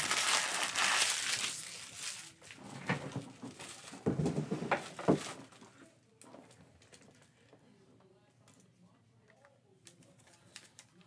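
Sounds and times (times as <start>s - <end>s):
packaging crinkling: 0.0s - 2.6s, 9.8s - 11.0s
knocks and clatters on table: 2.8s - 5.4s.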